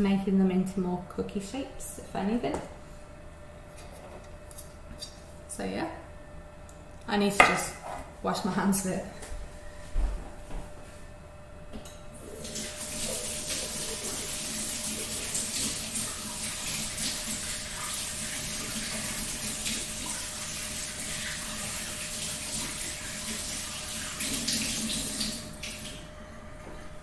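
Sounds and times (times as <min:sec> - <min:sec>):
tap water running: 0:12.2 - 0:26.0.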